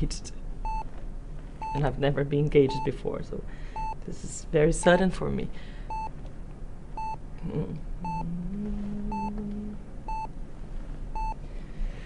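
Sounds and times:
patient monitor beeping: 0:00.6 - 0:00.9, 0:02.7 - 0:03.0, 0:03.8 - 0:04.0, 0:05.9 - 0:06.1, 0:07.0 - 0:07.2, 0:08.0 - 0:10.3, 0:11.2 - 0:11.4
low hummed note: 0:07.4 - 0:10.2.

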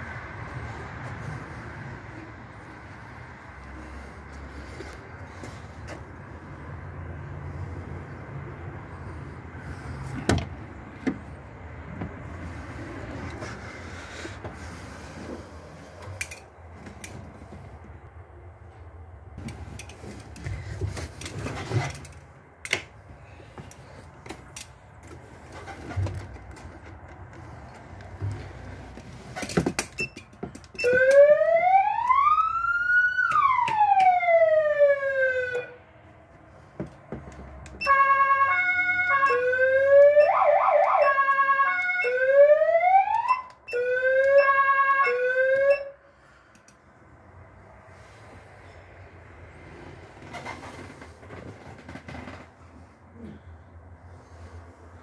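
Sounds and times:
fire truck siren: 0:30.7 - 0:35.9, 0:37.8 - 0:46.1.

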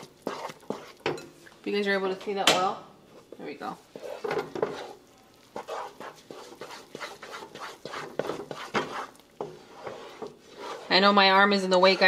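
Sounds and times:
wooden spoon stirring dough: 0:00.0 - 0:02.4, 0:03.1 - 0:12.0.

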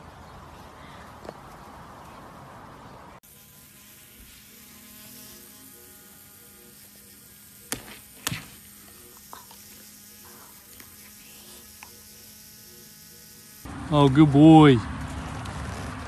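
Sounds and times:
electric toothbrush buzzing: 0:03.2 - 0:13.7.

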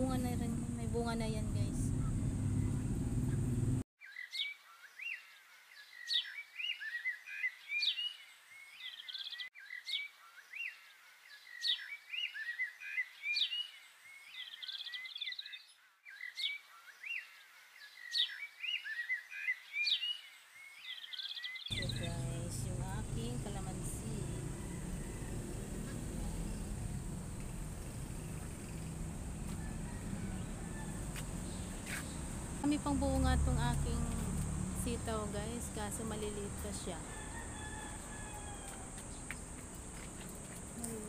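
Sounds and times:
birds chirping and singing: 0:00.0 - 0:34.2.

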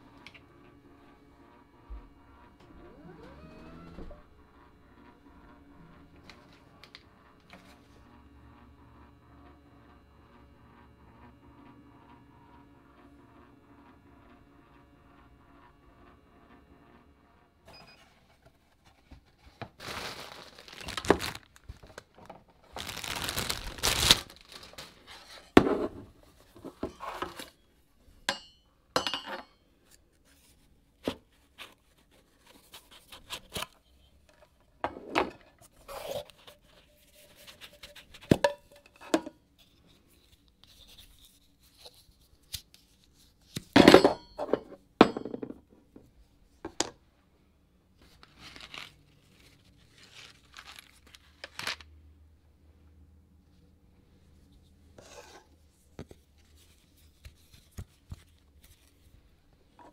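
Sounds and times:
cardboard and paper rustling: 0:17.9 - 0:27.6, 0:48.0 - 0:51.9, 0:55.0 - 0:59.2.

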